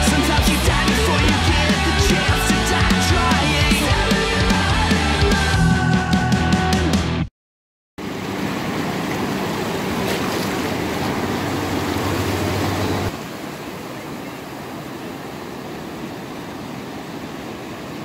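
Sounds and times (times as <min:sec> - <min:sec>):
surf washing around wading feet: 0:08.0 - 0:18.0.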